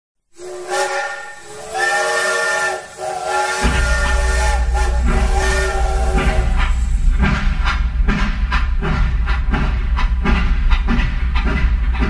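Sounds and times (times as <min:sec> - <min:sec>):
steam locomotive whistle: 0:00.3 - 0:07.0
low rumble: 0:03.6 - 0:12.0.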